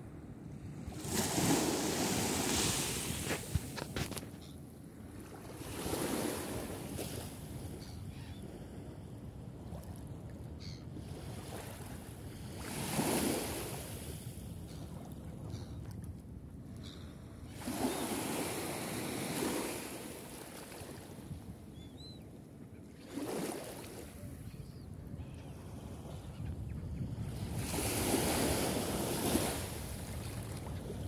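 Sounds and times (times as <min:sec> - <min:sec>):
gentle sea waves washing: 0:00.7 - 0:04.2, 0:17.5 - 0:21.5, 0:22.9 - 0:24.4, 0:27.4 - 0:31.0.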